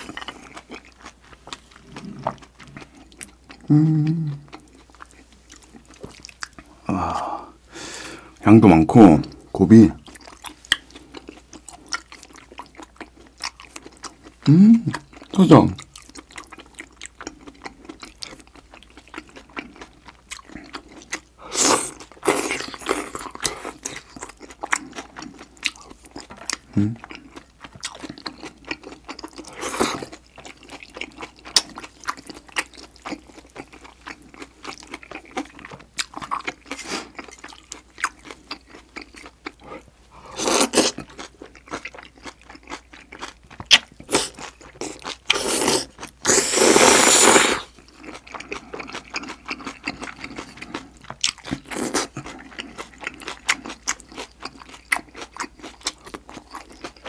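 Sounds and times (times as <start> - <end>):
wet chewing sounds: 0.0 - 6.8, 10.0 - 57.0
slurping noodles: 45.3 - 47.7.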